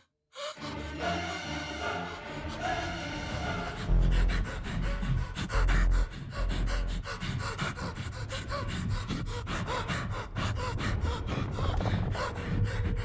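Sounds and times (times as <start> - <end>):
deep low rumble: 3.3 - 13.0
boy panting and whimpering: 3.7 - 13.0.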